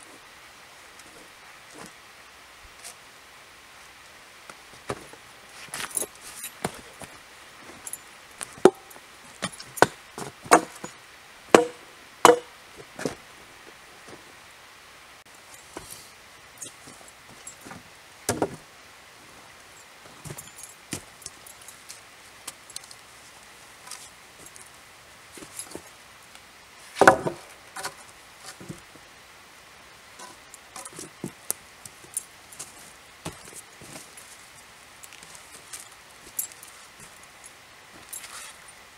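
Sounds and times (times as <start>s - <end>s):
wood knocking on wood: 11.6s - 12.5s
wood-on-wood knocks and clicks: 27.0s - 28.0s.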